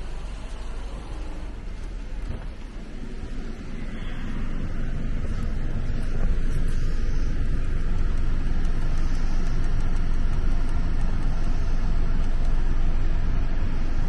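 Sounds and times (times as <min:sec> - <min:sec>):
engine idling: 0:00.0 - 0:14.0.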